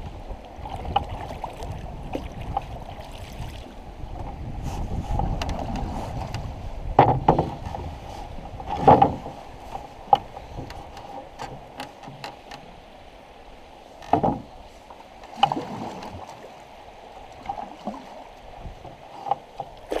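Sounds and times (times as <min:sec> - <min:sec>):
steady wash of water: 0:00.0 - 0:20.0
paddle splashing in water: 0:00.4 - 0:03.9, 0:13.4 - 0:20.0.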